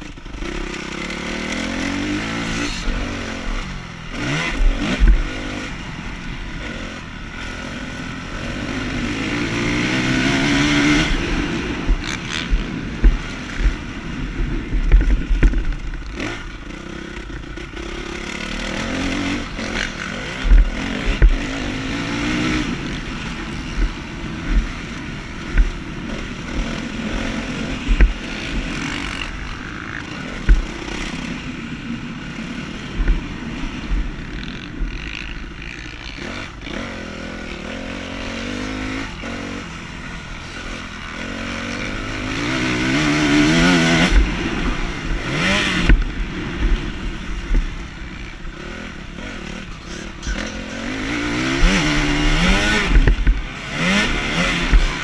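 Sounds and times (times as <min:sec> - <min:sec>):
motocross engine revving: 0:00.0 - 0:55.0
low thumps over bumps: 0:04.3 - 0:05.4, 0:11.8 - 0:16.1, 0:20.4 - 0:22.8, 0:23.4 - 0:30.9, 0:43.4 - 0:55.0.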